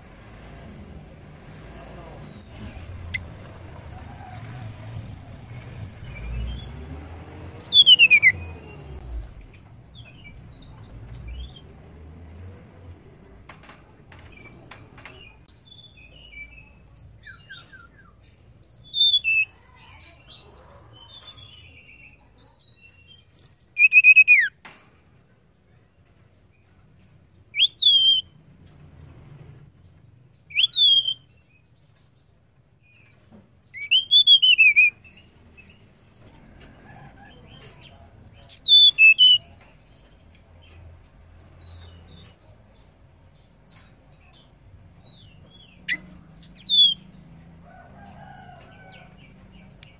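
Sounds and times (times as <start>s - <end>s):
bird whistled calls: 7.5s - 8.5s, 23.3s - 24.5s, 27.5s - 28.3s, 30.5s - 31.3s, 33.8s - 35.0s, 38.2s - 39.5s.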